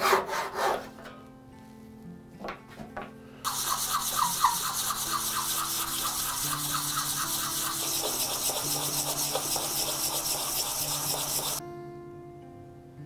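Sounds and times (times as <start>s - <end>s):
wood sanding by hand: 3.5s - 11.6s.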